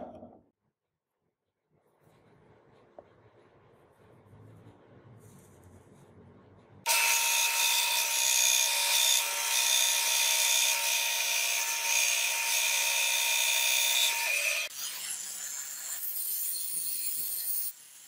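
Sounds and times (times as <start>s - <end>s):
band saw cutting metal: 6.9s - 18.0s.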